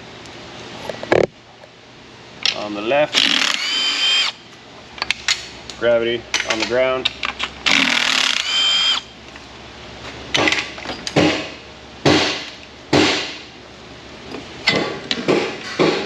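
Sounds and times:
cordless drill whining: 3.2s - 4.4s, 7.7s - 9.1s
sharp knocks: 11.2s - 13.4s, 14.7s - 16.0s.

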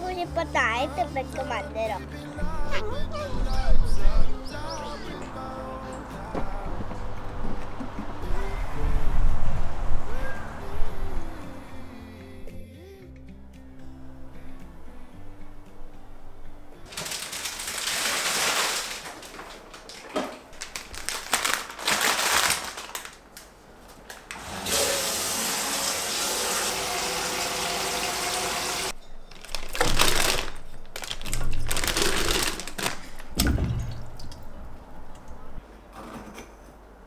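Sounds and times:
water running from a tap: 24.7s - 28.9s.

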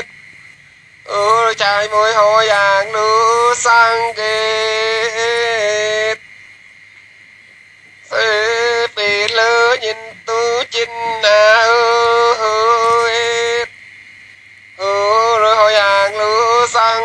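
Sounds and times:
high voice singing: 1.1s - 6.2s, 8.0s - 13.7s, 14.8s - 17.0s.

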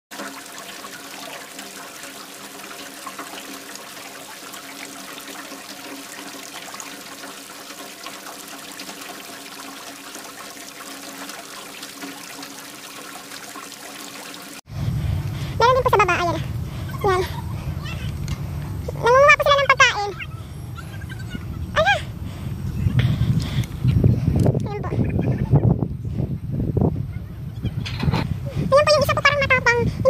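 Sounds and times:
small waves lapping against bank: 0.1s - 16.0s
faint steady hum: 14.7s - 24.7s.

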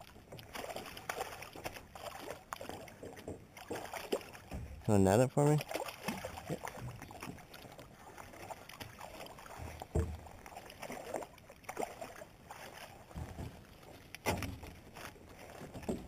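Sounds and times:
fish splashing in water: 0.0s - 4.8s, 5.4s - 16.0s
knocks against boat: 9.5s - 10.3s, 13.1s - 14.7s, 15.6s - 16.0s.

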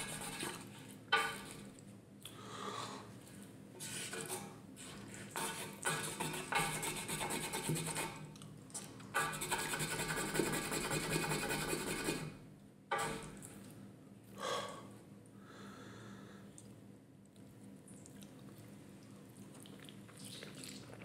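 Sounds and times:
wooden spoon scraping meat: 3.8s - 8.2s.

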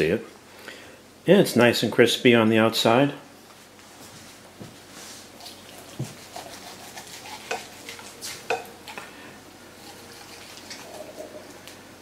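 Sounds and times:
knife slicing crispy skin: 5.4s - 8.5s.

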